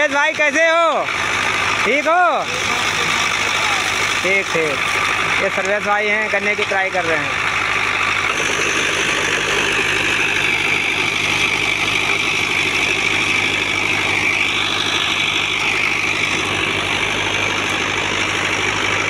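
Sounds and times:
higher mechanical whine: 0:00.0 - 0:19.0
sugarcane crusher engine hum: 0:00.0 - 0:19.0.

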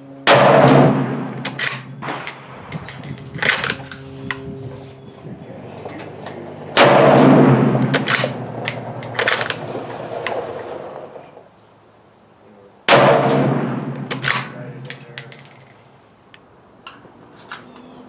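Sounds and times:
rifle shots echoing: 0:00.2 - 0:04.0, 0:06.5 - 0:11.3, 0:12.9 - 0:15.4.

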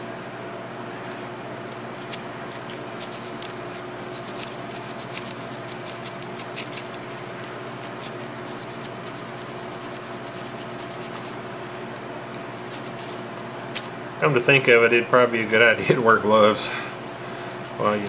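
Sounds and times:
steady low hum: 0:00.0 - 0:18.0
swab scrubbing a battery terminal: 0:02.0 - 0:11.4, 0:12.7 - 0:13.2, 0:16.2 - 0:18.0.

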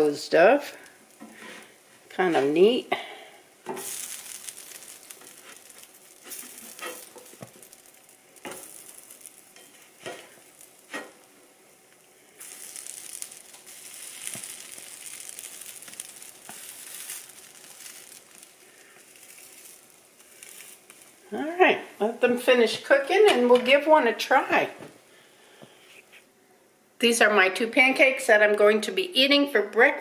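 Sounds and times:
pancakes sizzling on griddle: 0:00.0 - 0:21.6
spatula scraping and tapping griddle: 0:01.2 - 0:02.6, 0:03.6 - 0:11.3, 0:12.4 - 0:21.1.

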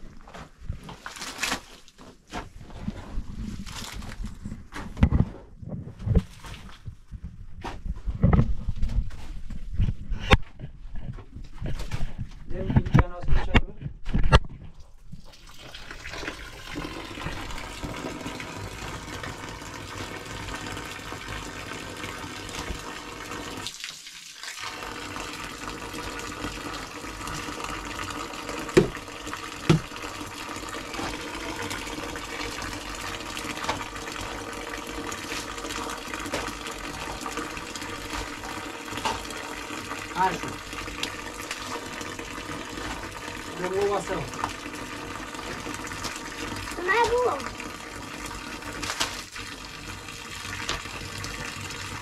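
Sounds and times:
running water: 0:15.1 - 0:52.0.

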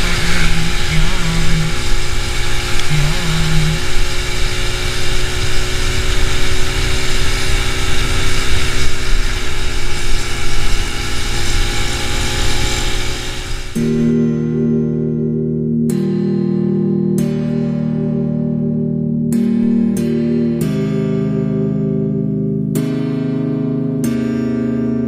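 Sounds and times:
wind rush on microphone: 0:00.0 - 0:13.8
motorcycle engine running: 0:00.0 - 0:14.3.

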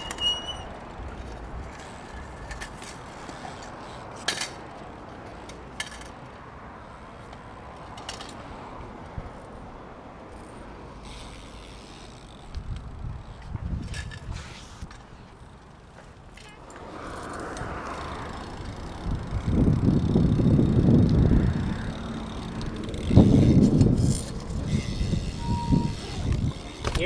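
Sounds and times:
high squeal: 0:00.0 - 0:00.8, 0:24.7 - 0:26.3
bike clicks and ratcheting: 0:00.0 - 0:06.4, 0:07.2 - 0:08.6, 0:10.3 - 0:27.0
bike tyres rolling on concrete: 0:00.0 - 0:27.0.

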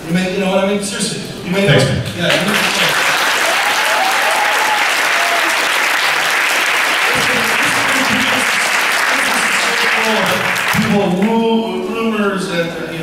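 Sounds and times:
audience applauding: 0:02.1 - 0:11.4.

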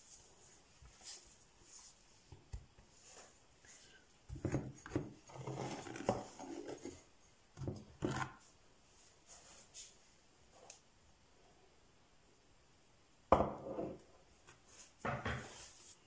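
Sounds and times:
rubbing and scraping at counter: 0:02.9 - 0:07.1, 0:13.6 - 0:16.0.

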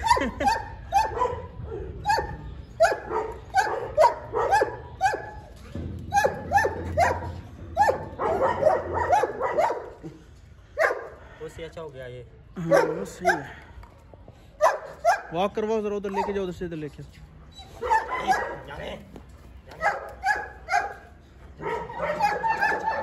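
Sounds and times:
dog barking: 0:00.0 - 0:05.4, 0:06.1 - 0:10.0, 0:10.8 - 0:11.1, 0:12.7 - 0:13.5, 0:14.6 - 0:15.3, 0:17.8 - 0:18.8, 0:19.8 - 0:21.0, 0:21.6 - 0:23.0.

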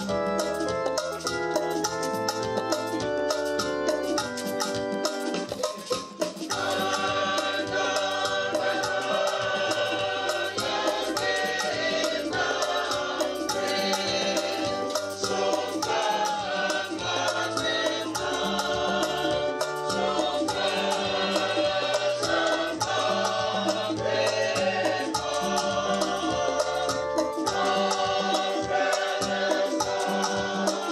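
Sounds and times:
rhythmic percussion: 0:00.0 - 0:30.9
choir singing: 0:06.5 - 0:30.9.

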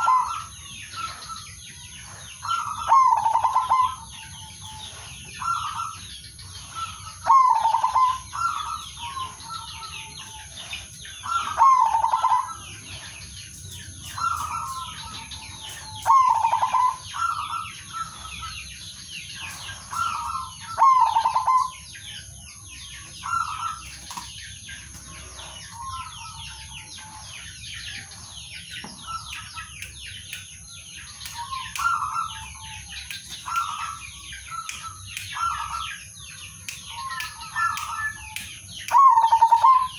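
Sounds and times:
dove cooing: 0:00.0 - 0:01.2, 0:02.1 - 0:13.1, 0:14.2 - 0:18.5, 0:19.4 - 0:21.8, 0:38.9 - 0:39.9
thin high chirping: 0:00.0 - 0:39.9.

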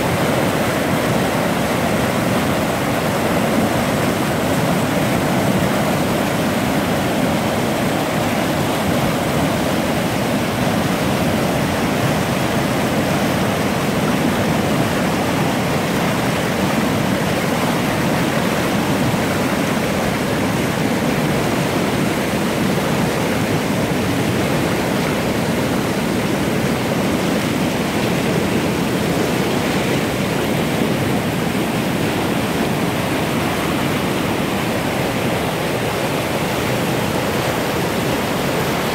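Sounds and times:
river rushing over rocks: 0:00.0 - 0:38.9.

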